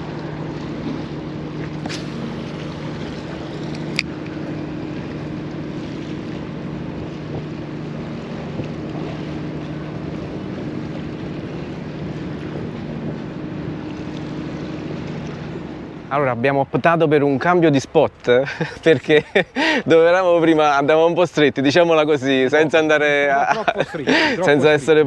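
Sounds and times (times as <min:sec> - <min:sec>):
wind on microphone: 0:00.0 - 0:16.1
ship engines humming: 0:00.0 - 0:25.0
water lapping: 0:00.0 - 0:25.0.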